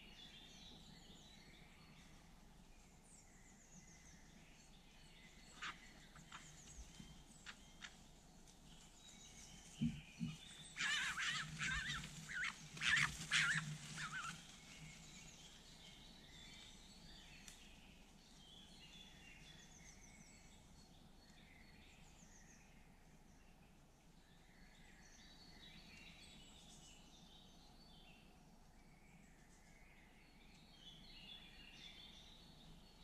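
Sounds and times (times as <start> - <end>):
birds chirping faintly: 0.0 - 33.0
fox cubs squealing and whining: 9.8 - 14.6.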